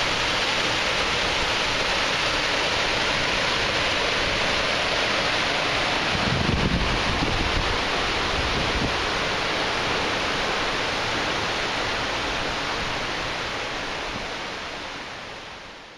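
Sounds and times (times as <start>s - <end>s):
creek water rushing: 0.0s - 15.9s
wind rumble on microphone: 6.0s - 9.1s.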